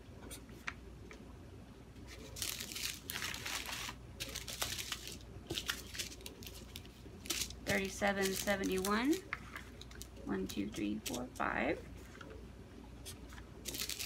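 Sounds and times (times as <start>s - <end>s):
plastic bags crinkling: 2.1s - 11.4s, 13.6s - 14.0s.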